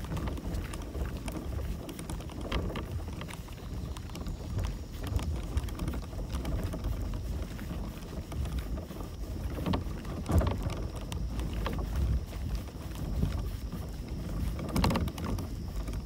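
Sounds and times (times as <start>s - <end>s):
paddle splashing in water: 0.0s - 16.0s
wind rumbling on microphone: 0.0s - 16.0s.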